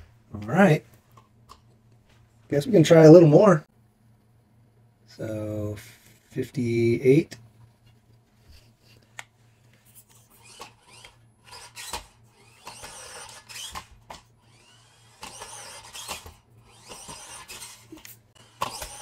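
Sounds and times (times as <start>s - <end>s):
small electric motor whining: 10.0s - 19.0s.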